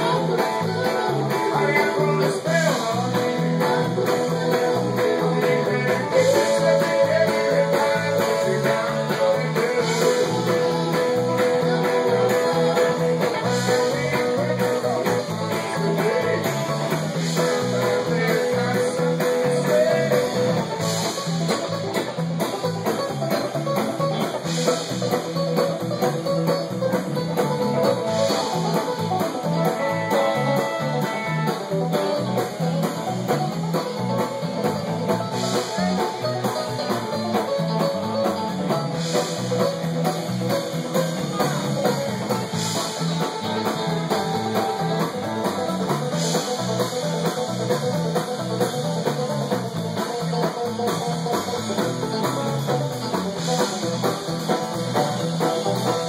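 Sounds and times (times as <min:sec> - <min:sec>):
banjo picking: 0:00.0 - 0:56.0
bass guitar: 0:00.0 - 0:56.0
drum kit beat: 0:00.0 - 0:56.0
electric guitars: 0:00.0 - 0:56.0.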